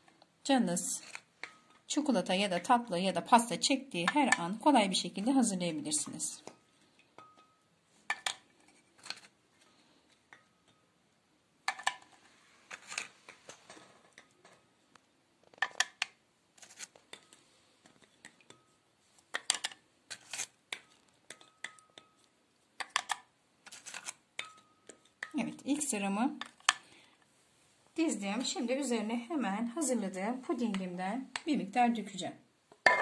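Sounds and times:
biscuits clicking and tapping: 0:01.0 - 0:01.8, 0:04.0 - 0:04.5, 0:06.4 - 0:09.4, 0:11.6 - 0:12.1, 0:12.7 - 0:27.0.

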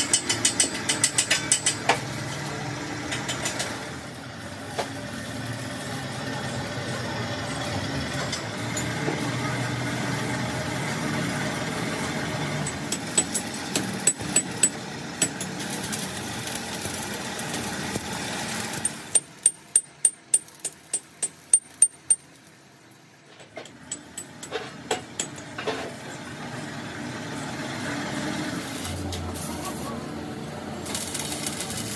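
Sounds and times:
hammer striking steel: 0:00.0 - 0:02.4, 0:03.0 - 0:03.9, 0:12.6 - 0:16.0, 0:18.8 - 0:22.4, 0:23.5 - 0:26.0
arc welding hiss: 0:12.9 - 0:19.1, 0:28.6 - 0:30.1, 0:30.8 - 0:31.9.

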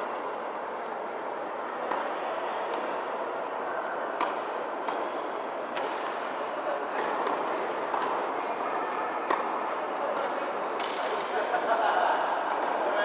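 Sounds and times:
hall background noise: 0:00.0 - 0:13.0
tennis balls struck by rackets: 0:01.8 - 0:11.5, 0:12.4 - 0:13.0.

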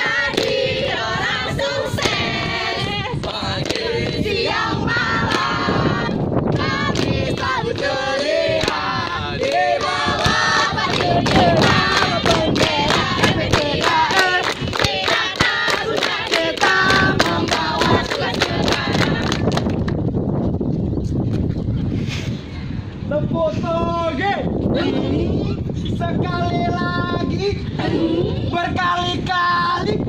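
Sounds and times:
rhythmic hand claps: 0:00.0 - 0:01.1, 0:01.9 - 0:02.3, 0:03.2 - 0:05.7, 0:06.5 - 0:20.0
group singing in unison: 0:00.0 - 0:19.6.

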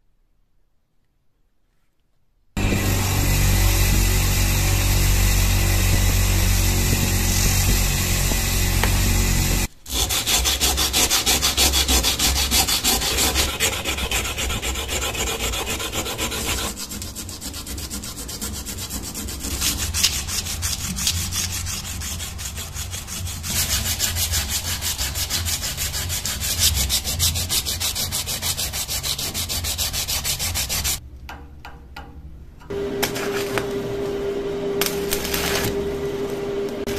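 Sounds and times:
abrasive strip rubbing blade: 0:02.6 - 0:31.0, 0:34.8 - 0:35.8
abrasive wheel grinding steel blade: 0:02.6 - 0:31.0, 0:32.7 - 0:36.9.

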